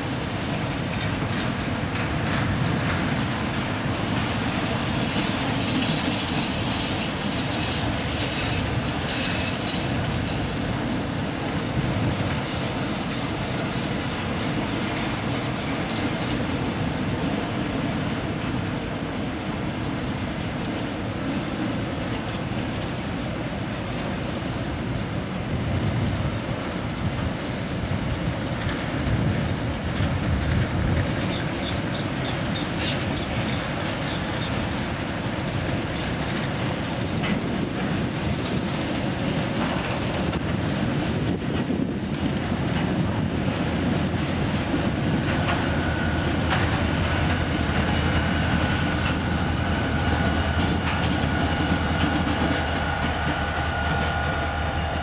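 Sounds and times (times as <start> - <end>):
train wheels clattering on rails: 0.0 - 55.0
high-pitched wheel squeal: 3.7 - 11.4, 45.3 - 55.0.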